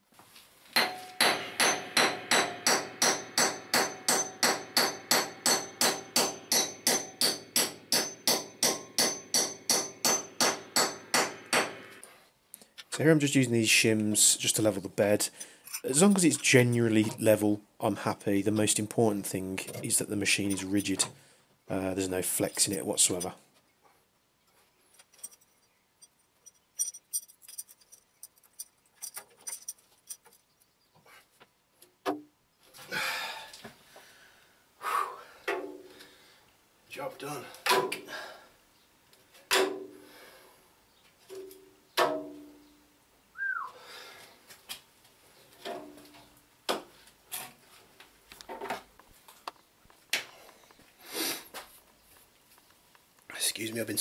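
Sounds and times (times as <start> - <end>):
hammer striking metal bolt: 0.8 - 11.9
shims clicking and clinking: 24.9 - 30.5.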